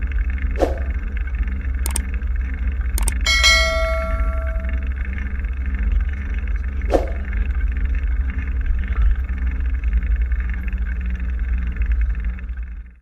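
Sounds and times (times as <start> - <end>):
sharp click: 3.0 - 4.8.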